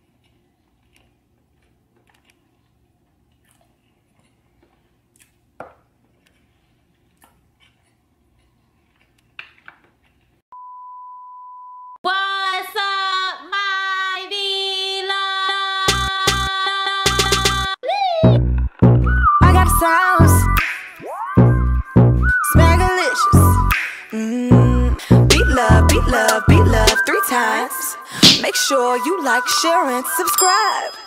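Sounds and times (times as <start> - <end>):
person chewing with mouth clicks: 0.0 - 5.5, 6.1 - 9.4
single-pitch beep: 10.6 - 12.0.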